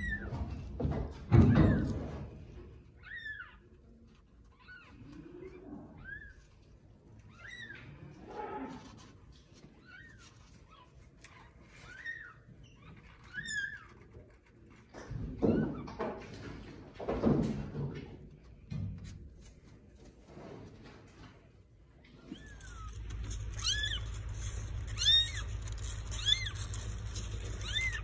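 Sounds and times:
soft rustles: 2.0s - 15.1s, 18.3s - 28.0s
kitten mewing: 22.3s - 28.0s.

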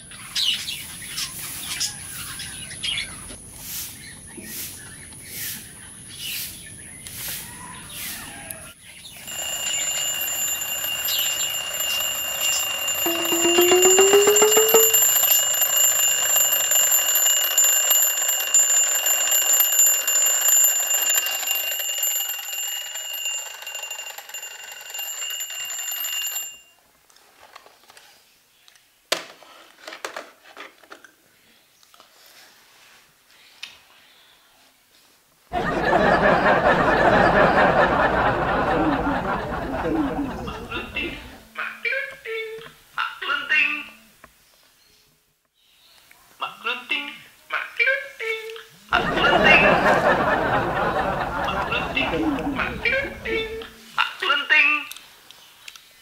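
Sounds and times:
alarm clock ringing: 9.2s - 26.7s, 35.6s - 41.4s, 49.0s - 53.7s.

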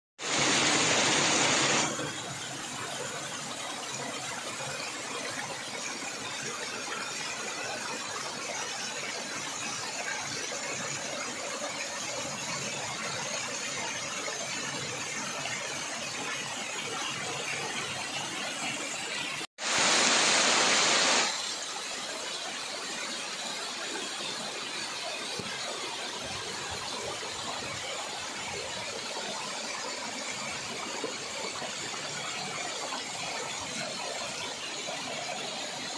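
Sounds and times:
waterfall splashing onto rocks: 0.2s - 2.0s, 19.6s - 21.4s.

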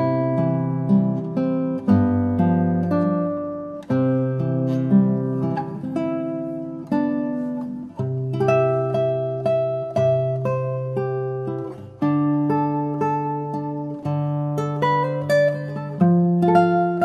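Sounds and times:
strummed acoustic guitar: 0.0s - 17.0s.

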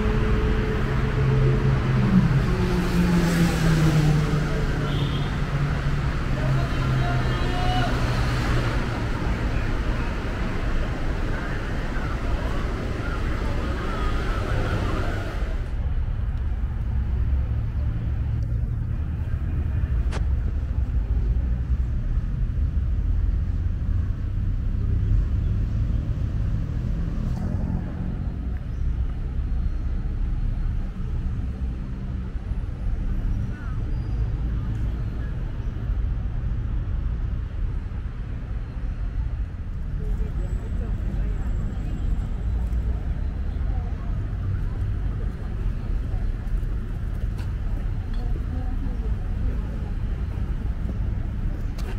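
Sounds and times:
distant traffic drone: 0.0s - 51.9s
passing traffic hiss and rumble: 0.0s - 51.9s.

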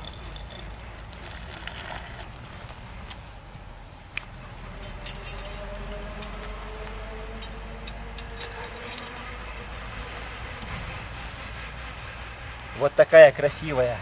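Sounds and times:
metal rod clinking on stones: 0.0s - 0.8s, 4.8s - 6.4s, 7.4s - 9.3s.

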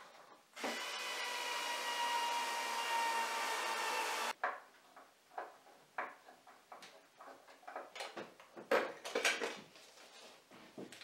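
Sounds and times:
light wooden knocks and clicks: 4.4s - 9.7s.

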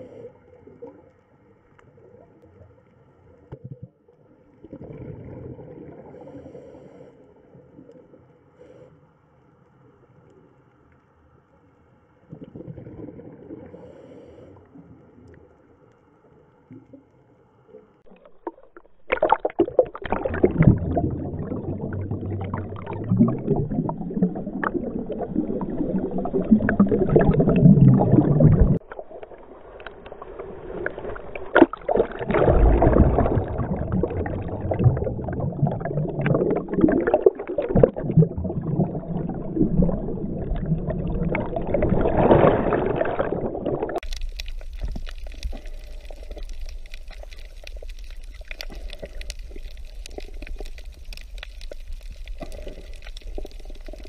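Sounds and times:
water churning underwater: 0.0s - 8.9s, 12.1s - 54.0s.

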